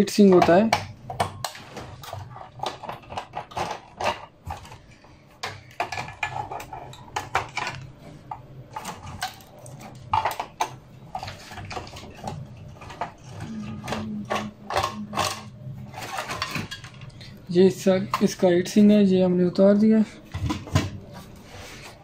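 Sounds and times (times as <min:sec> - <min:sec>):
tool knocking on metal parts: 0:00.0 - 0:01.6.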